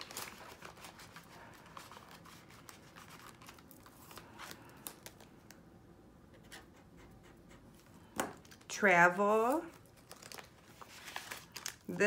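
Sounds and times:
plastic and paper crinkling: 0.0 - 5.6, 8.4 - 12.0.

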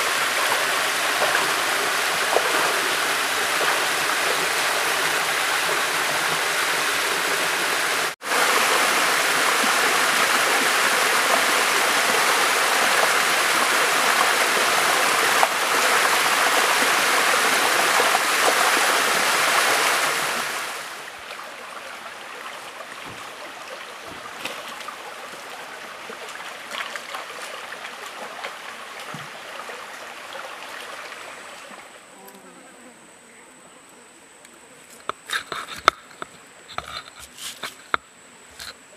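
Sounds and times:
waterfall rushing over rock: 0.0 - 21.2.

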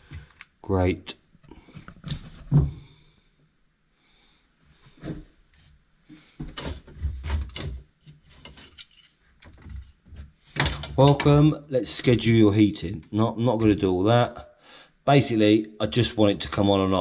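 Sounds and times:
thump: 2.5 - 2.9.

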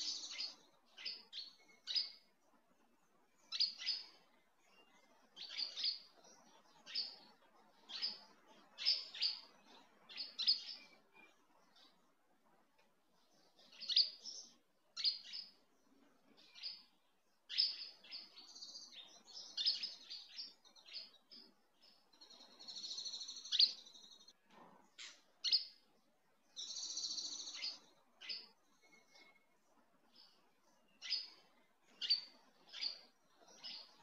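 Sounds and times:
bird trills: 0.0 - 2.2, 26.6 - 29.4
bird chirping: 0.0 - 34.0.

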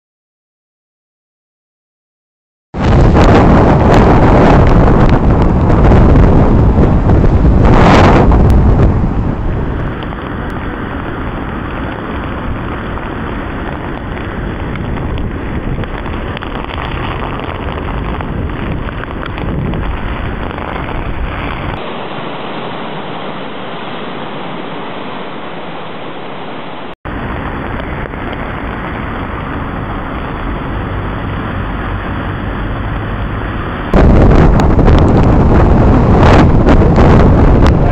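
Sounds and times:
wind buffeting microphone: 2.8 - 21.9, 27.1 - 37.9
surf breaking over rocks: 2.8 - 37.9.

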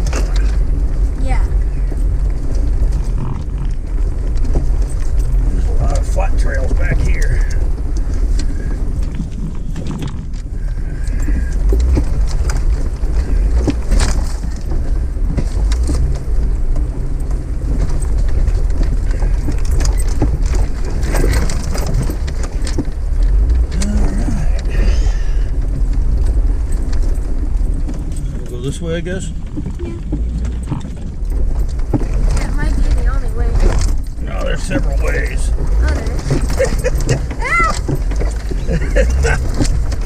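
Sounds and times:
low engine rumble: 0.0 - 40.0
vehicle body knocks and rattles: 0.0 - 40.0.

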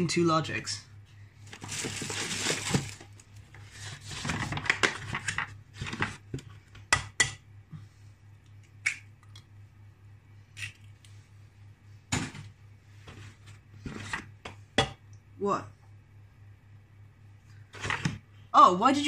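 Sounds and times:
steady low hum: 0.0 - 19.0
egg box rustling: 1.5 - 5.2.

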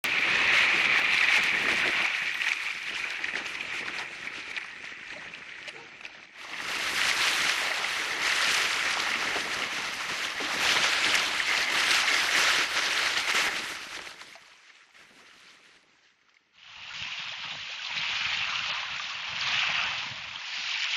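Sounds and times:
water rushing past kayak hull: 0.0 - 14.4.

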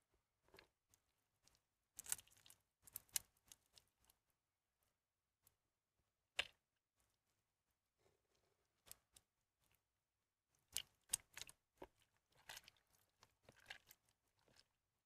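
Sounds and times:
wet soap squishing: 0.3 - 4.3, 6.3 - 7.3, 7.9 - 9.9, 10.5 - 15.0.

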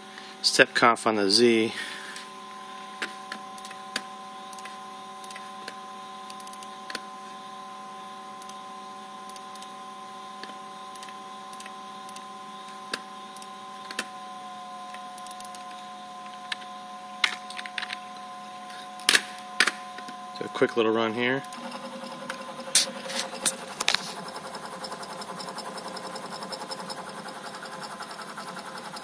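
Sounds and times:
router motors whining: 10.4 - 29.0.

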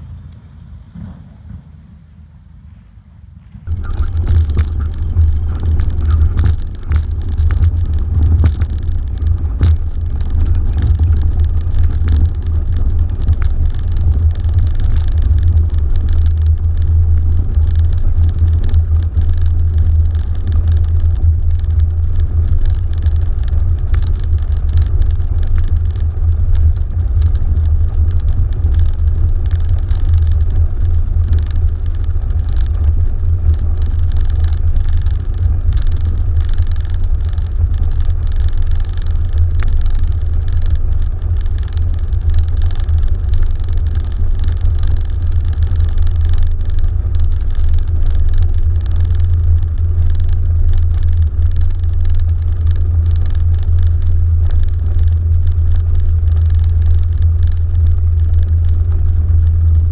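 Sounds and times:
plane engine and propeller droning: 0.0 - 44.5.

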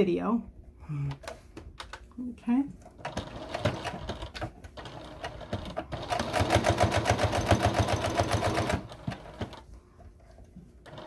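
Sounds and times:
sewing machine stitching: 3.0 - 9.6.

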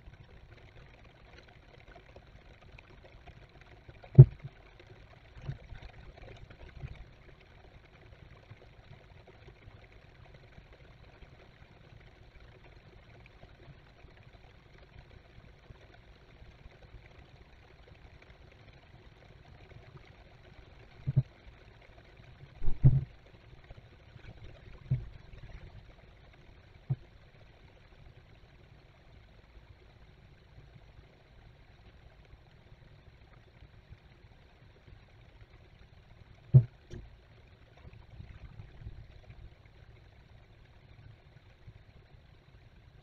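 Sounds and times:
low thumps: 22.6 - 23.1.

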